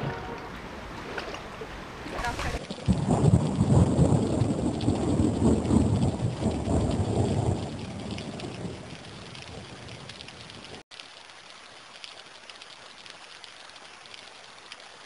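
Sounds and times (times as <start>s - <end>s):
thunder rumbling: 0.0s - 10.8s
steady rain: 0.0s - 15.0s.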